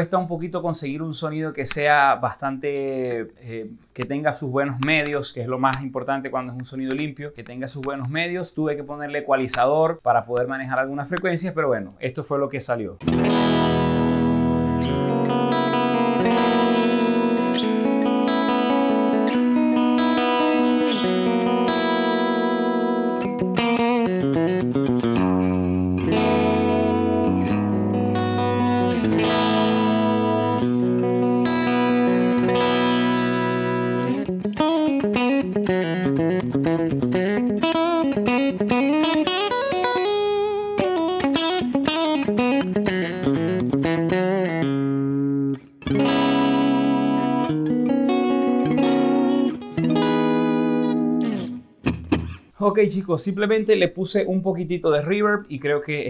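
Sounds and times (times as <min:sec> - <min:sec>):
electric guitar with reverb: 0:13.0 - 0:52.6.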